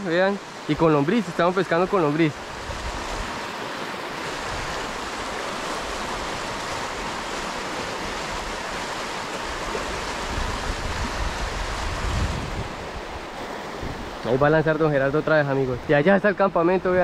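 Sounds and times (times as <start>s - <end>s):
river rushing over rocks: 0.0s - 17.0s
wind rumble on microphone: 2.4s - 3.5s, 4.3s - 14.3s.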